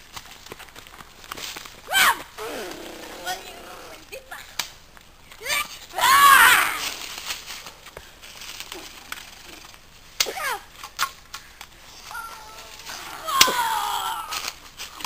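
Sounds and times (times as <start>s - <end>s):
boy yelping and crying: 1.9s - 4.2s, 5.4s - 7.0s, 12.0s - 14.5s.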